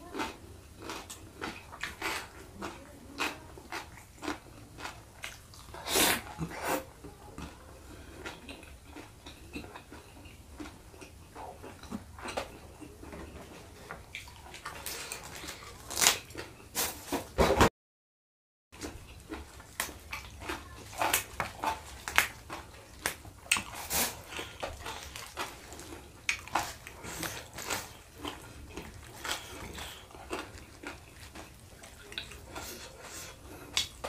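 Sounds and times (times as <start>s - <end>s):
wet chewing and lip smacking: 0.2s - 6.6s, 7.2s - 13.0s, 13.9s - 16.6s, 18.8s - 34.0s.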